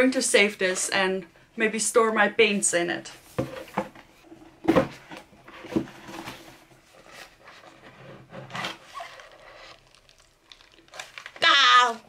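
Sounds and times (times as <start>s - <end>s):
cardboard rubbing and scraping: 4.8s - 9.9s.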